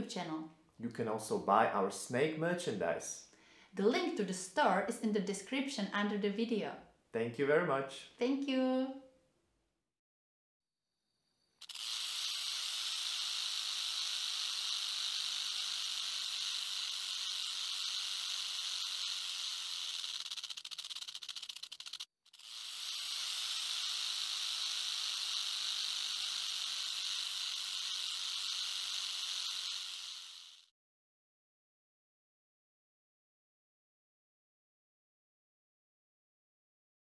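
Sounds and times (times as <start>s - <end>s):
snake hissing: 11.5s - 30.7s.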